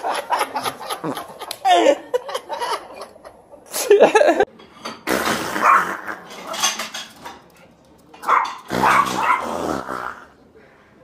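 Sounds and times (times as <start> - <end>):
dog barking: 8.2 - 9.5.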